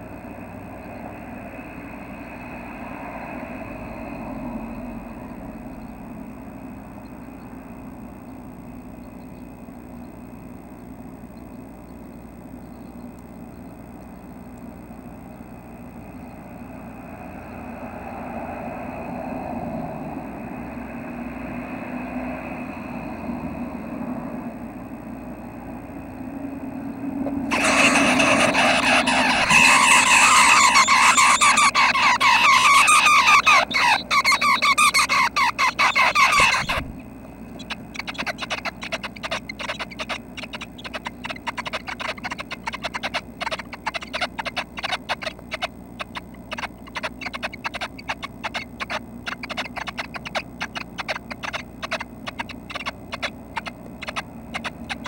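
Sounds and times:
nestlings squealing begging calls: 0:27.4 - 0:55.0
nestlings scratching and clicking: 0:27.5 - 0:55.0.

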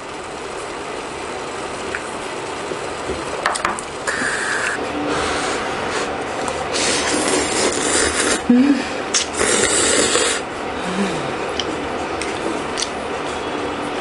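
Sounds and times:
noodles being slurped: 0:06.7 - 0:08.4, 0:09.1 - 0:10.5.

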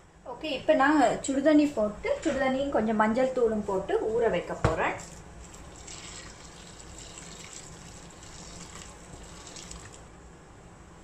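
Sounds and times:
water pouring into a bowl: 0:05.4 - 0:10.1.

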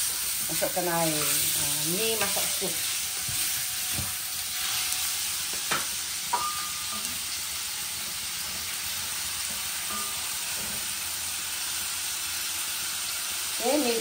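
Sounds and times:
garlic sizzling in hot oil: 0:00.0 - 0:14.0.

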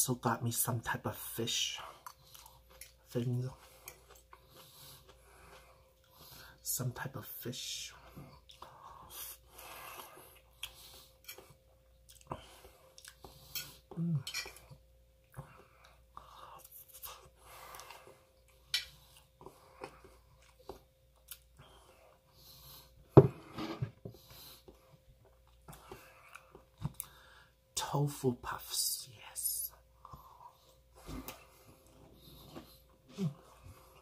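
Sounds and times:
person chewing: 0:02.0 - 0:06.4, 0:08.3 - 0:21.8.

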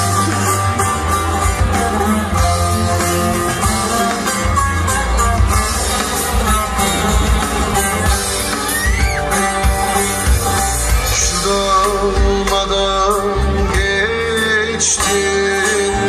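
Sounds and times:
low drum beat: 0:00.0 - 0:16.0
plucked string instrument: 0:00.0 - 0:16.0
person singing: 0:06.3 - 0:16.0.

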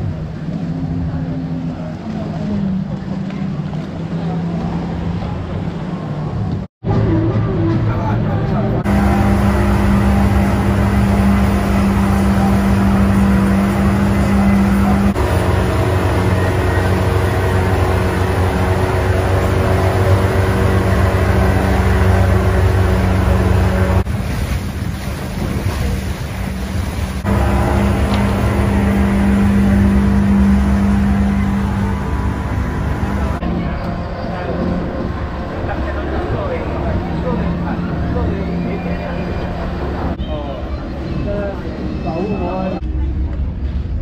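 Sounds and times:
outboard motor running: 0:08.8 - 0:40.3.

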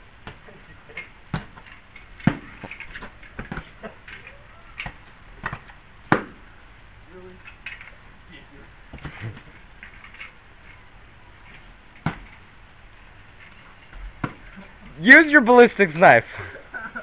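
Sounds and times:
padded weapons thwacking: 0:01.3 - 0:03.8, 0:04.8 - 0:06.4, 0:12.0 - 0:12.4.

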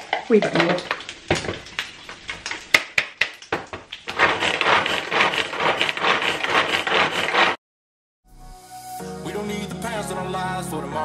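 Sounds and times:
food chopper whirring rattle: 0:04.1 - 0:07.6.

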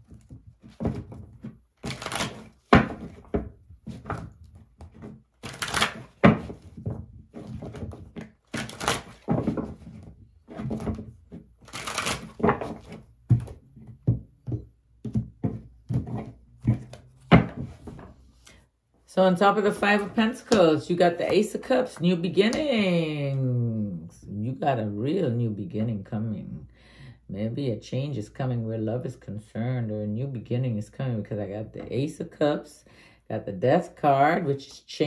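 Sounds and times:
cards being shuffled: 0:01.4 - 0:03.0, 0:04.9 - 0:10.0, 0:10.6 - 0:13.0.

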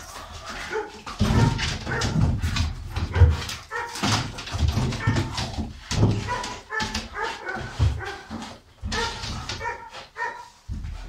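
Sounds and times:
dog barking: 0:00.6 - 0:02.3, 0:03.0 - 0:04.2, 0:04.8 - 0:05.4, 0:06.0 - 0:10.6.

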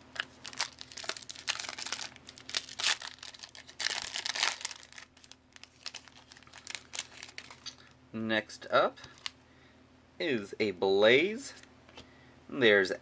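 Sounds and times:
foil wrapper crinkling: 0:00.1 - 0:07.9, 0:09.1 - 0:09.4
foil wrapper ripping: 0:00.2 - 0:07.8.

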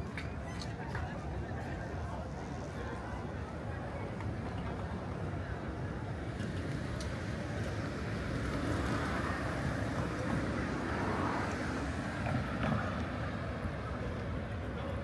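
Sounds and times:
passing cars: 0:04.2 - 0:15.0.

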